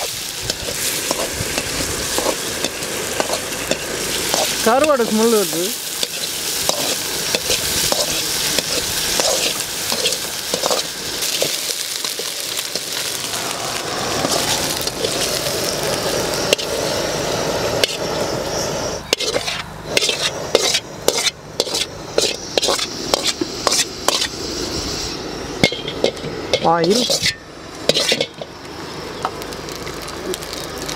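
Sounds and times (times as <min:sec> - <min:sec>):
meat sizzling in oil: 0:00.0 - 0:30.9
metal spoon scraping a pan: 0:06.0 - 0:12.8, 0:19.1 - 0:24.3, 0:25.6 - 0:28.5.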